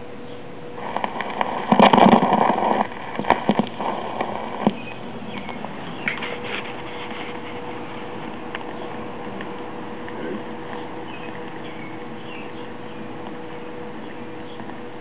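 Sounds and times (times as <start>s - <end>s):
faint steady hum: 0.0s - 15.0s
record clicks and crackle: 0.0s - 15.0s
needle scraping on record: 0.8s - 14.8s.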